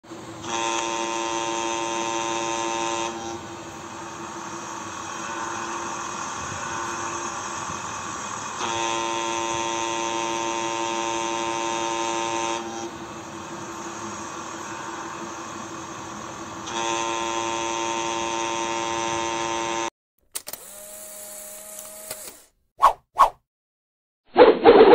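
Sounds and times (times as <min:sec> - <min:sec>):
boat air horn blasts: 0:00.4 - 0:03.8, 0:08.6 - 0:13.2, 0:16.6 - 0:19.9.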